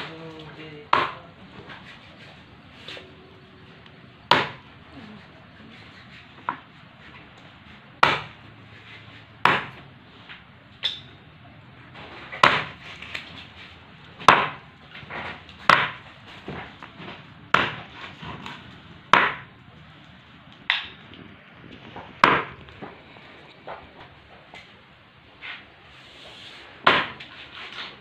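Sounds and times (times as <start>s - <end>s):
knife chopping on wooden block: 4.3s - 4.6s, 8.0s - 8.4s, 9.4s - 9.8s, 12.4s - 12.8s, 14.2s - 14.6s, 15.2s - 16.7s, 17.5s - 18.5s.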